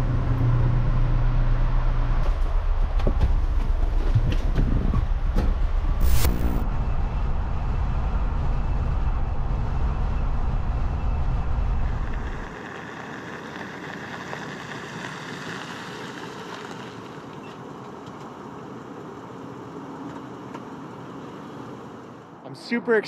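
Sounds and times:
car tyres hissing on gravel: 12.2 - 19.7.

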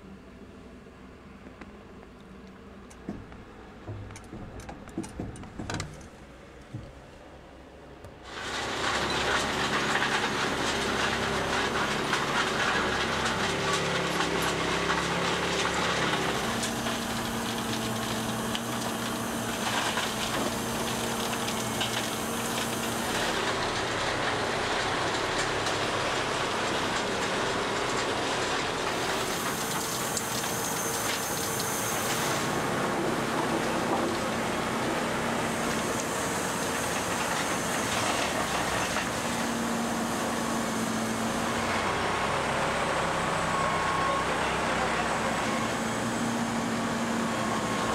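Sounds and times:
machine engine hum: 0.0 - 47.9
dense hiss and clatter: 8.1 - 43.8.

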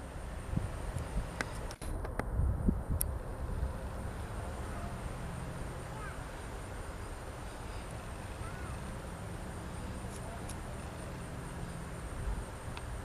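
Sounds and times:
faint bird chirps: 5.8 - 8.9.

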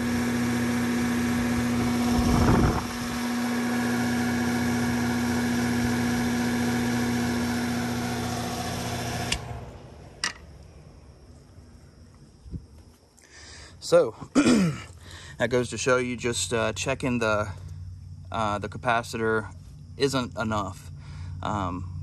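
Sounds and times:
air conditioner fan humming: 0.0 - 10.2.

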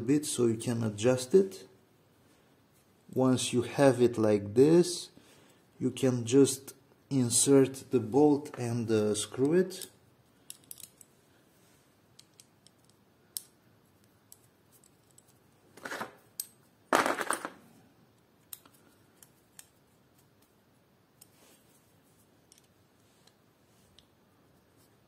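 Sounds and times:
small metal parts clicking: 9.8 - 11.1, 14.3 - 17.5
metal parts clattering: 15.8 - 17.6.

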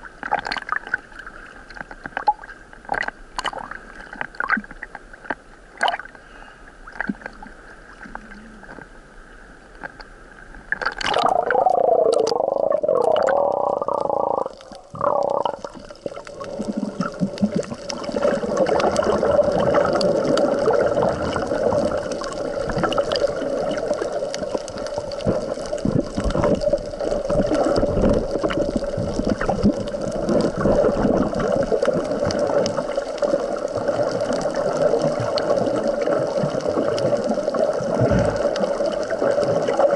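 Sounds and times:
water lapping and splashing: 9.7 - 39.9
muffled underwater rushing: 10.7 - 39.9.

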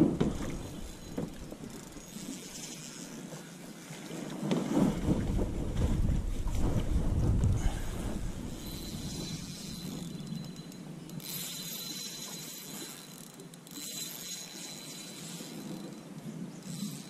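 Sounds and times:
fishing reel drag clicking: 0.5 - 3.4, 8.5 - 17.0.

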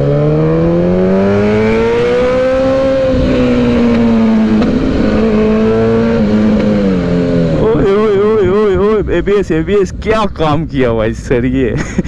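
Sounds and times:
motorcycle engine accelerating: 0.0 - 9.5.

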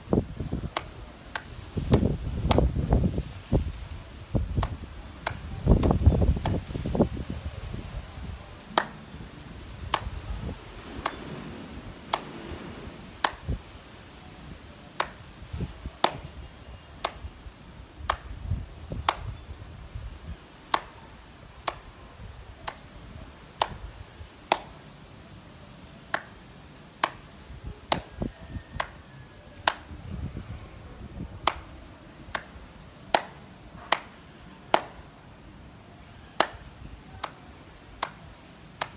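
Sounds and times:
sharp hand claps: 0.7 - 2.7, 4.6 - 6.6, 8.7 - 9.1, 9.9 - 10.2, 11.0 - 11.2, 12.1 - 12.3, 13.2 - 13.6, 15.0 - 15.2, 16.0 - 16.3, 17.0 - 17.3, 18.1 - 18.3, 19.0 - 19.4, 20.7 - 21.0, 21.6 - 21.9, 22.6 - 22.8, 23.6 - 23.8, 24.5 - 24.8, 26.1 - 26.4, 27.0 - 27.3, 27.9 - 28.1, 28.8 - 29.9, 31.4 - 31.7, 32.3 - 35.0, 36.4 - 36.6, 37.2 - 37.4, 38.0 - 38.2.

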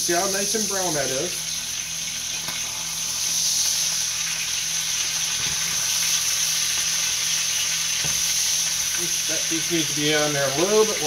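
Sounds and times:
chicken sizzling in a skillet: 0.0 - 11.0.

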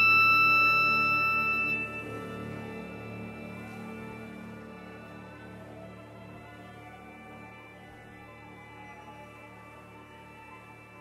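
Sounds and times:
loud high held note: 0.0 - 3.4
strings and woodwind held notes: 0.0 - 11.0.

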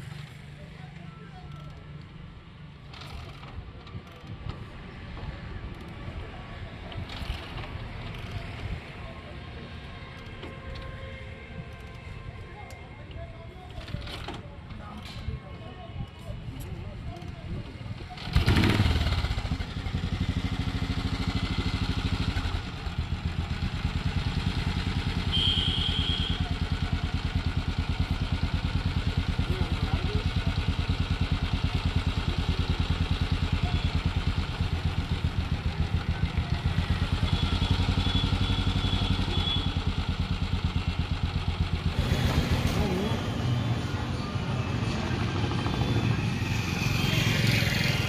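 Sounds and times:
single-cylinder engine idling: 18.2 - 43.4.

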